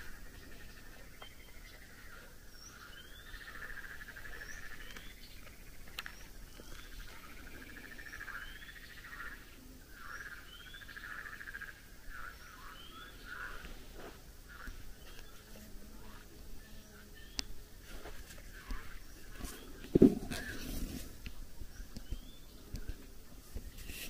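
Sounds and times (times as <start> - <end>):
frogs trilling in chorus: 0.0 - 13.8, 18.4 - 20.5.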